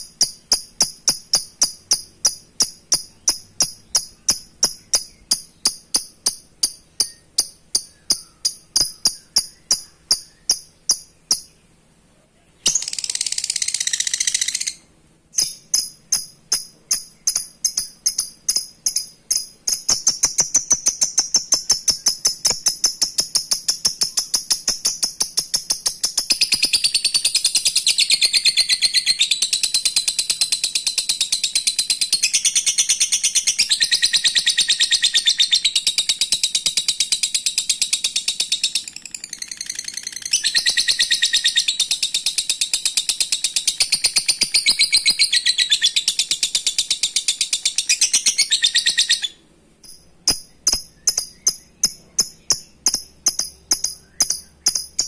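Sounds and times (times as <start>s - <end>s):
lovebird rapid chattering trill: 0.0s - 11.6s, 12.6s - 55.0s
bird sharp chirps: 0.0s - 11.8s, 12.6s - 55.0s.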